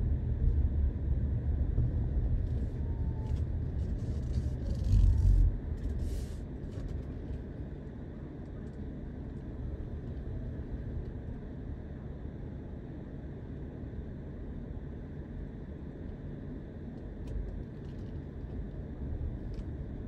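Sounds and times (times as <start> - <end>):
car engine and tyres rumbling: 0.0 - 11.4, 17.0 - 20.0.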